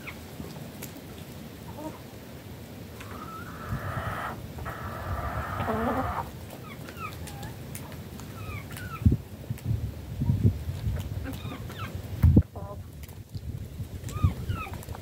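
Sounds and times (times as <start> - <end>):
hens chirping: 3.0 - 7.6, 14.0 - 14.9.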